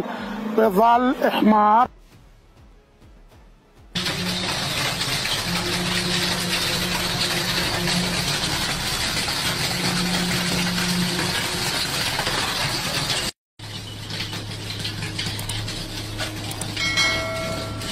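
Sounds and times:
machine engine running: 4.0s - 17.9s.

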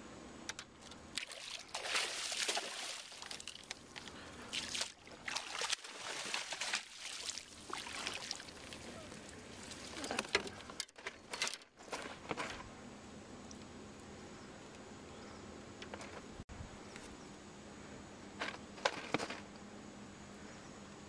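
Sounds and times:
water splashing: 1.1s - 10.7s.

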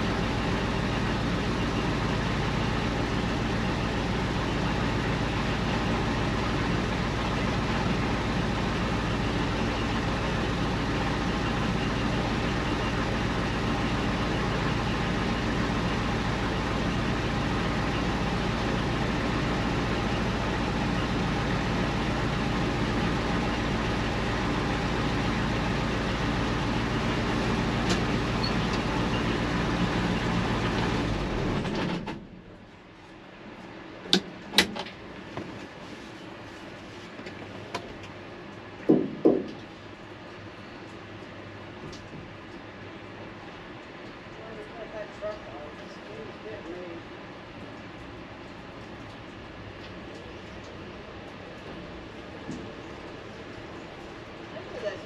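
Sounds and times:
diesel truck engine running: 0.0s - 36.8s.

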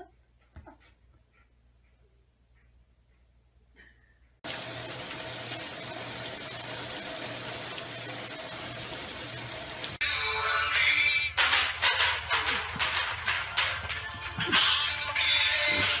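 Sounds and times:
rain on a wooden deck: 4.4s - 10.0s.

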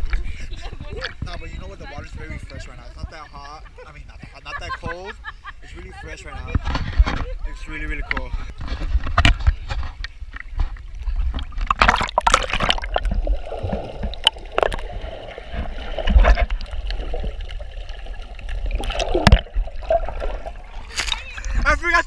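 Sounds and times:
water gurgling and sloshing: 0.0s - 5.2s, 5.9s - 22.0s
water splashing: 6.2s - 22.0s.

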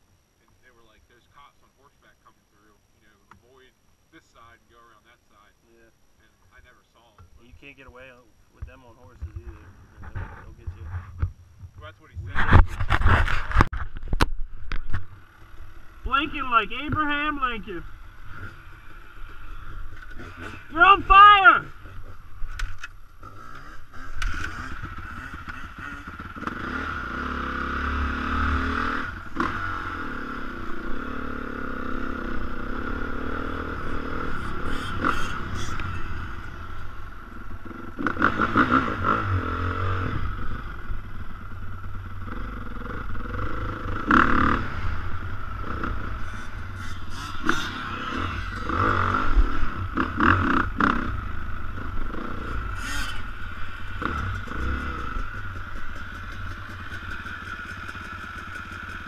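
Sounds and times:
dirt bike engine revving: 15.0s - 59.0s.

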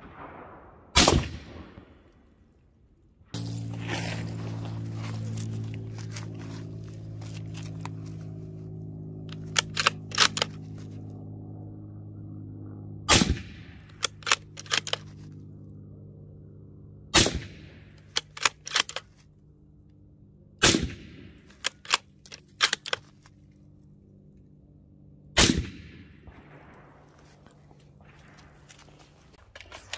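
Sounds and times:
rifle shots: 0.0s - 2.0s, 13.1s - 15.0s, 17.2s - 19.0s, 20.6s - 22.0s, 25.4s - 29.9s
rifle bolt metallic clicks: 9.3s - 10.7s, 13.9s - 15.1s, 18.0s - 19.1s, 21.5s - 23.2s.

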